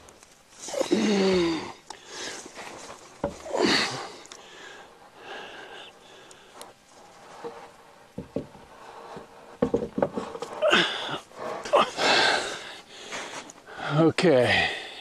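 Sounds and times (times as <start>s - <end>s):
man breathing hard: 0.7s - 2.6s, 3.4s - 6.7s, 10.5s - 15.0s
short knocks: 9.6s - 10.4s.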